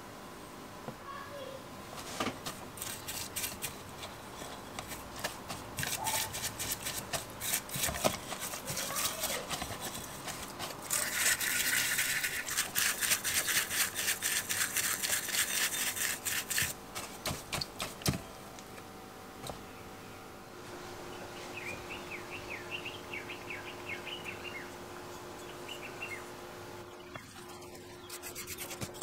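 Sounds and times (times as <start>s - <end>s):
small brush scrubbing metal: 2.0s - 18.2s, 27.2s - 29.0s.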